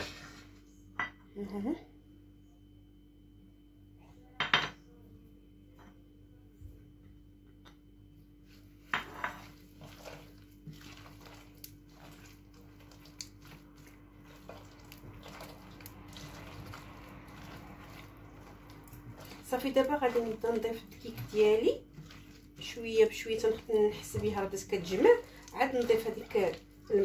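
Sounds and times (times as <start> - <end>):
hand squishing dough: 8.4 - 27.0.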